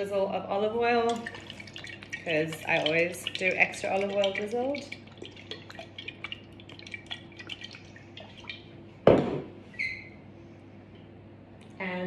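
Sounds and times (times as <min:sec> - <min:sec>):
faint drips and ticks: 0:01.1 - 0:08.7
oil pouring from glass bottle: 0:01.1 - 0:08.7.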